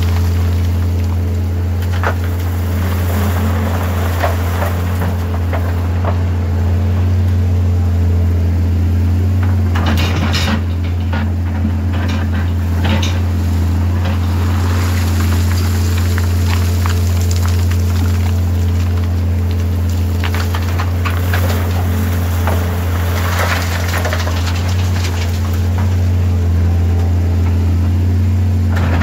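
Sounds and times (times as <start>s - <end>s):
excavator diesel engine drone: 0.0s - 29.0s
knocks and clatter: 9.4s - 14.3s, 14.9s - 26.0s.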